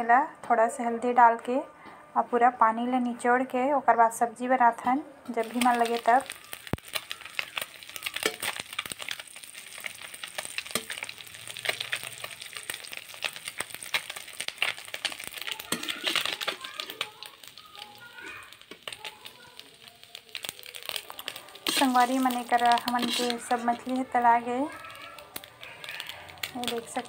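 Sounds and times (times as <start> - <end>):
metal ladle stirring: 5.4 - 17.6, 20.4 - 24.3
fish sizzling in hot oil: 5.4 - 27.0.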